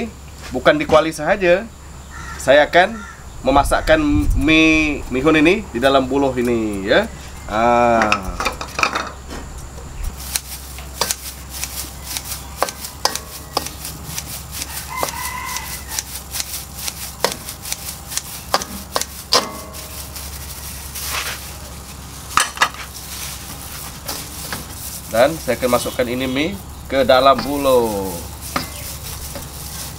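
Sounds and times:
rooster crowing: 2.1s - 3.3s, 14.5s - 16.6s.

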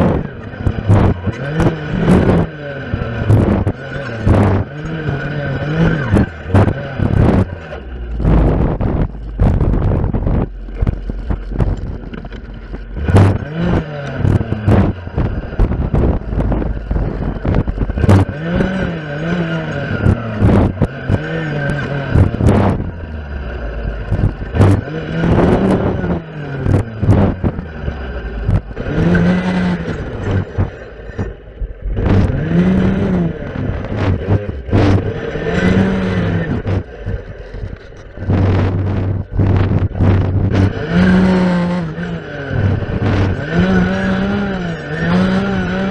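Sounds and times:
clearing saw engine revving: 0.0s - 45.9s.

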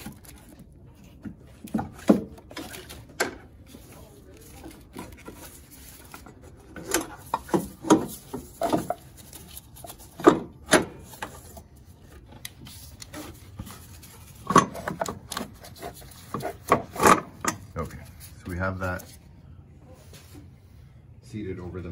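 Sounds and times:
rubbing and scraping on metal: 12.6s - 19.2s.

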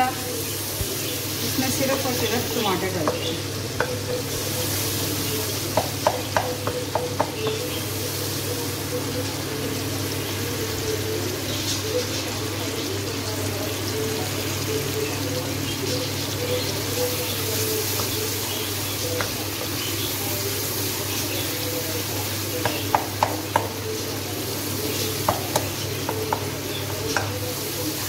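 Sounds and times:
tomatoes sizzling and bubbling: 0.0s - 28.0s
spatula knocking against pan: 3.0s - 4.3s, 5.7s - 7.7s, 19.2s - 19.7s, 22.6s - 23.8s, 25.2s - 27.4s.

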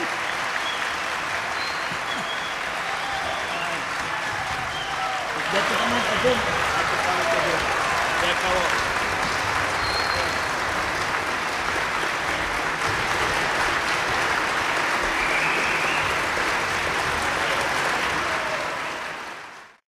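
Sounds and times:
audience applauding: 0.0s - 19.8s.

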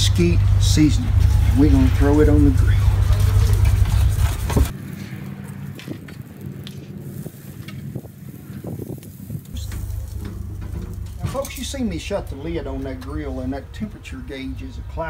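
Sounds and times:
low rumble: 0.0s - 13.7s
corn sizzling on grill: 0.4s - 13.0s.

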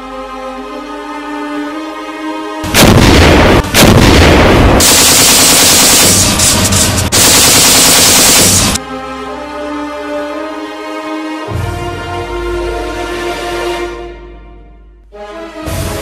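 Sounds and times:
continuous gunfire: 2.6s - 8.8s
tank cannon blasts: 2.7s - 8.8s.

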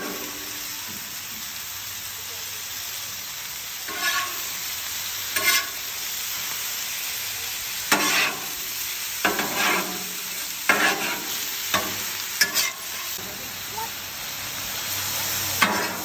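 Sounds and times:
chicken sizzling on griddle: 0.0s - 16.0s
metal spatula scraping steel: 3.9s - 4.5s, 5.4s - 5.8s, 7.9s - 8.5s, 9.2s - 10.1s, 10.7s - 13.2s.

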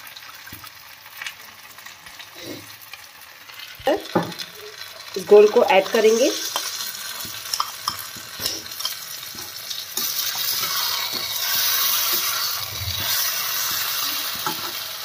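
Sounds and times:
food sizzling in a pan: 0.0s - 15.0s
spoon scraping a pan: 5.6s - 14.9s.

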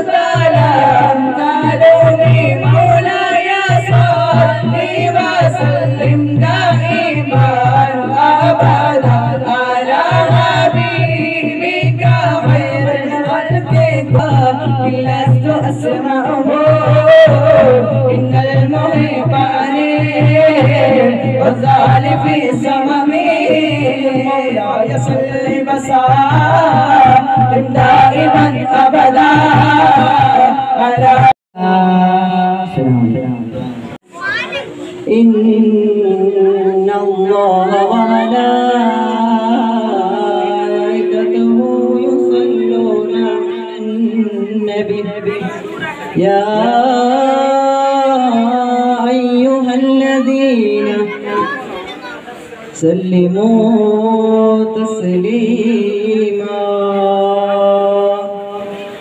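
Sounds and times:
boys singing into microphones: 0.0s - 33.9s, 34.7s - 59.0s
low sustained tone: 40.4s - 45.2s.

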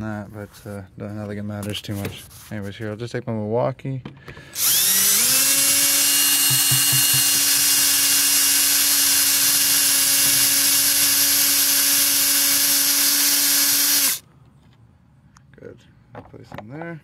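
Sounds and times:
cordless drill motor whining: 4.4s - 14.2s.

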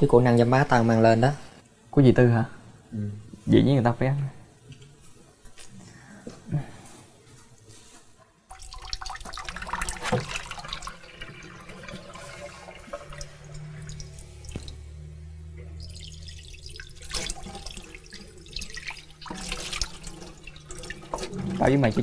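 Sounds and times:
tap water running into sink: 8.5s - 14.8s, 15.7s - 22.0s.

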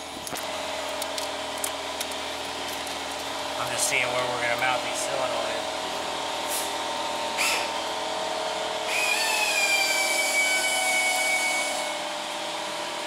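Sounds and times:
shop background hum: 0.0s - 13.0s
power drill motor whine: 7.1s - 13.0s.

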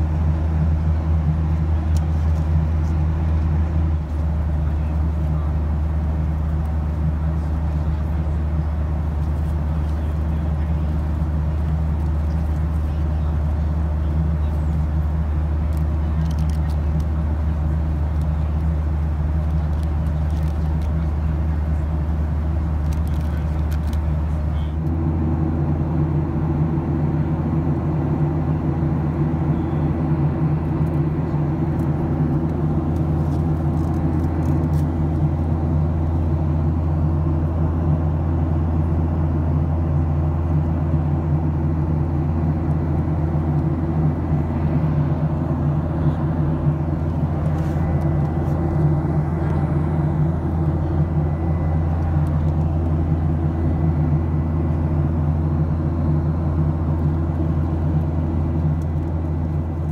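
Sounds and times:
airliner cabin drone: 0.0s - 59.9s
faint clicks and rustles: 9.2s - 21.9s, 22.7s - 25.0s, 31.7s - 35.5s.

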